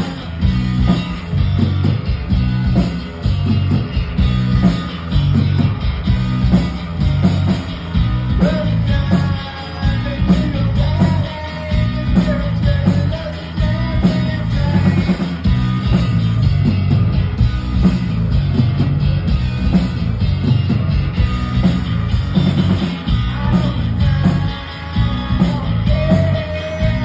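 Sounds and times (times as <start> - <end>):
live rock band playing: 0.0 - 27.0
man singing: 8.4 - 15.4, 23.1 - 27.0.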